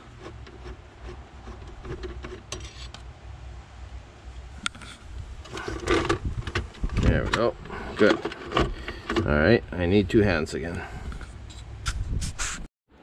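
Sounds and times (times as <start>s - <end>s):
screwdriver scraping plastic: 0.0s - 3.0s.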